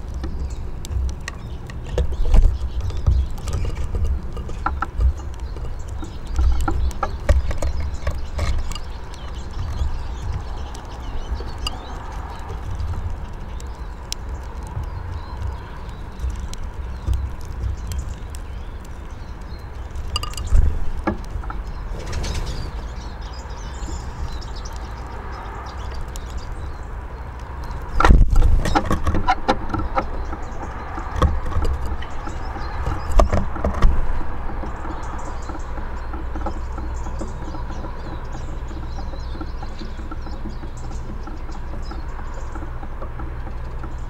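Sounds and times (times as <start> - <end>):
steady low rumble: 0.0 - 28.8
birds tapping on wooden feeder: 0.0 - 44.0.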